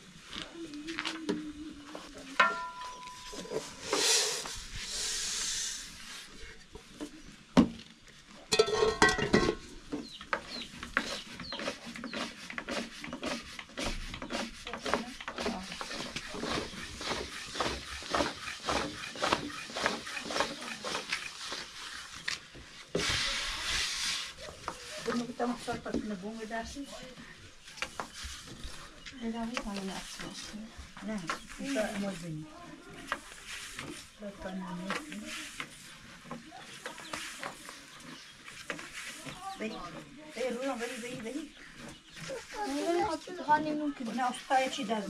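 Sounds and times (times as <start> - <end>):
short hiss: 3.8 - 6.1.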